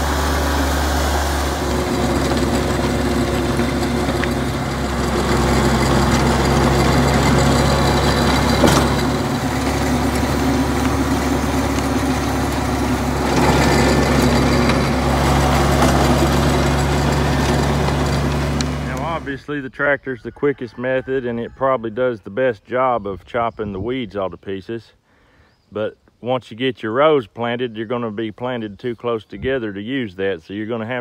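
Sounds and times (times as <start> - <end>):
rotary tiller churning soil: 0.0 - 19.3
tractor engine running: 0.0 - 19.6.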